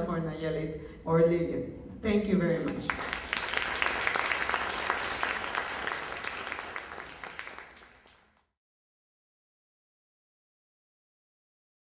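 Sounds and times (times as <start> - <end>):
audience applauding: 2.7 - 8.5.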